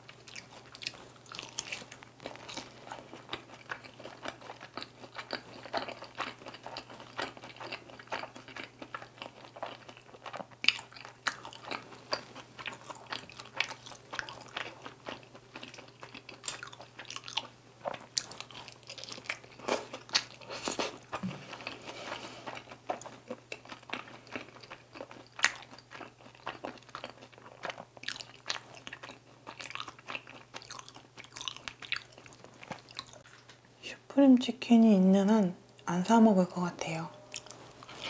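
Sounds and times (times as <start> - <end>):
chewing crispy fried chicken: 0.0 - 33.6.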